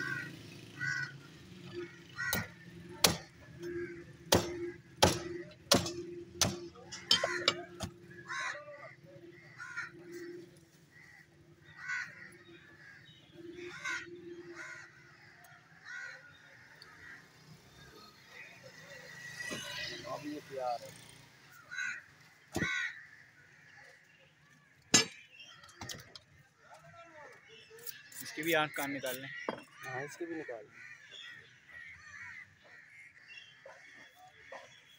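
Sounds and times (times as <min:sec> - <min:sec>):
cleaver chopping on wooden block: 0:02.3 - 0:03.3, 0:04.3 - 0:07.9.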